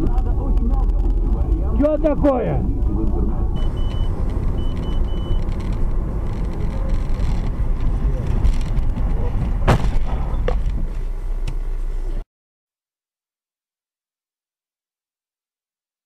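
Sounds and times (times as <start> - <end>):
car road and engine rumble: 0.0 - 12.2
high electronic beeps: 0.9 - 5.5.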